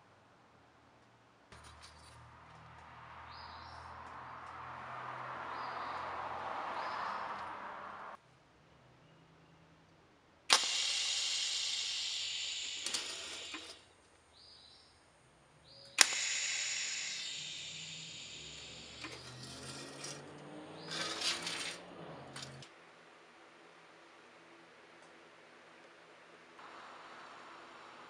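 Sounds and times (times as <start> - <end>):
welding arc crack: 10.5 - 13.8, 16.0 - 20.2, 20.8 - 22.7
welding arc hissing: 10.5 - 13.9, 15.9 - 20.2, 20.8 - 22.6.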